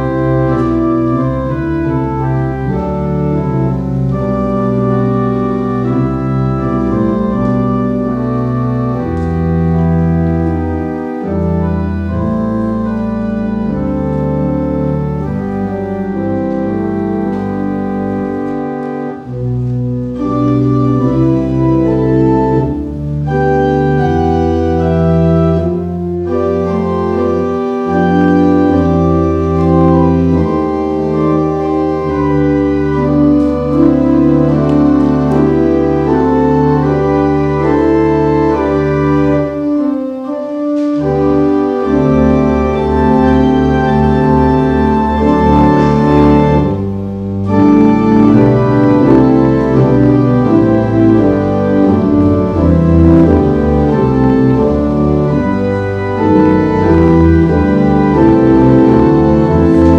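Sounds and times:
church organ playing chords: 0.0 - 59.9.

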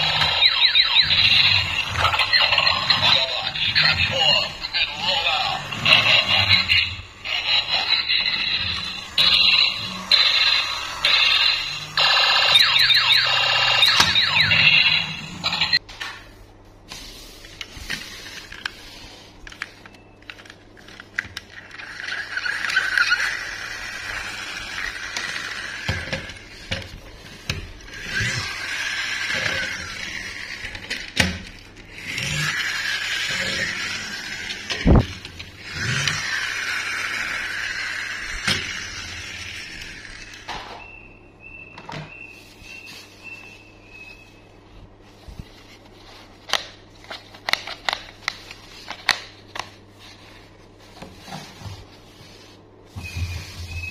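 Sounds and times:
toy wheels whirring: 0.0 - 15.8, 20.3 - 40.6.

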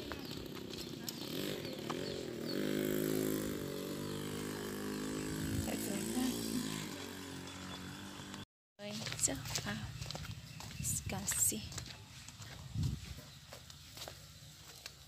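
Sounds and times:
small petrol engine running: 0.0 - 10.1.

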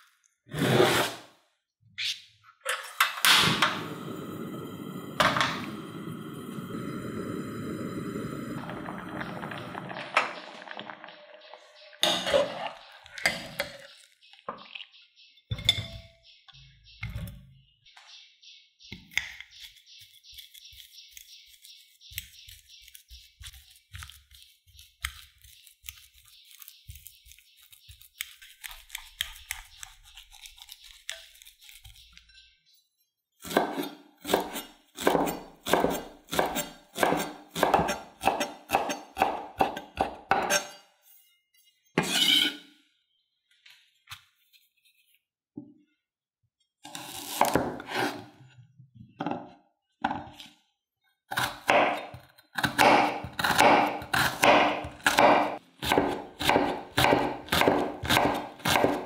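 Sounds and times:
knife chopping on wooden board: 33.4 - 40.6, 51.3 - 59.0.

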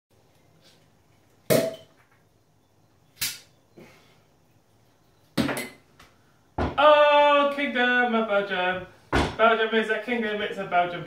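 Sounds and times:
bottle caps popping off: 1.5 - 2.2.

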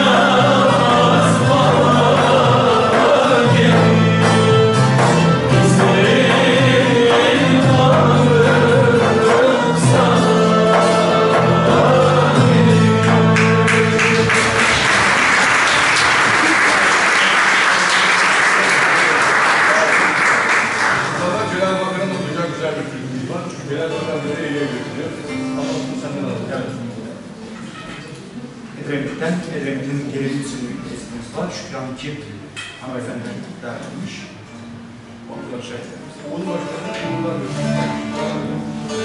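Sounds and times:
folk lute ensemble playing: 0.0 - 14.6, 21.0 - 28.7, 34.4 - 39.0
person singing: 0.0 - 14.6
audience applause: 13.4 - 21.4.

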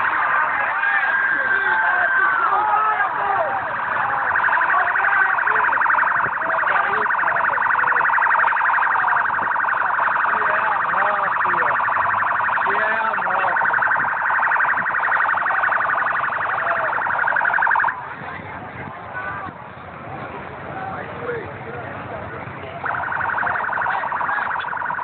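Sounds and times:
crowd shouting: 0.0 - 8.0.

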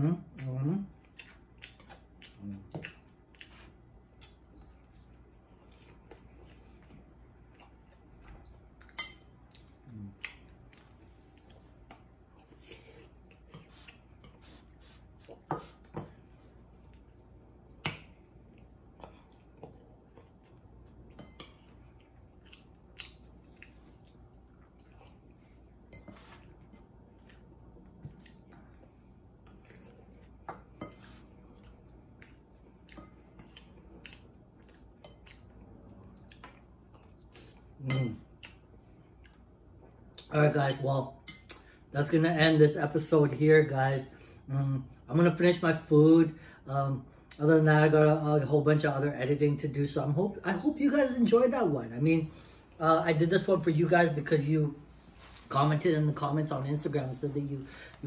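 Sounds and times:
quiet chewing: 0.2 - 40.4.

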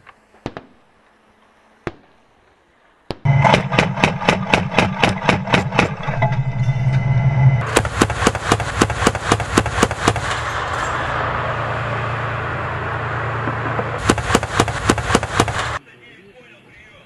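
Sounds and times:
vehicle engine running: 3.3 - 6.5, 7.4 - 15.8
autocannon firing single shots: 7.6 - 11.2, 13.5 - 15.8.

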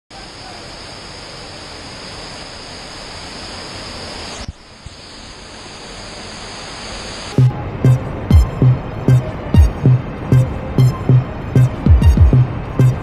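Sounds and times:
waterfall rushing: 5.3 - 13.0.

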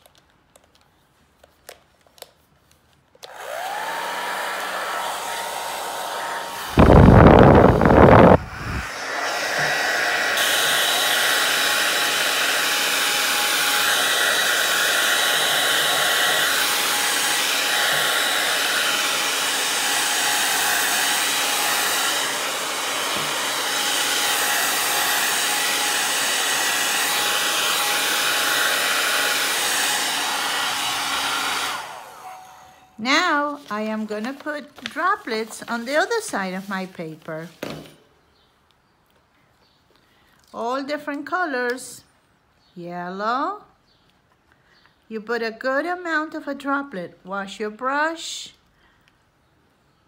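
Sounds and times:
hair dryer blowing: 3.2 - 34.1.

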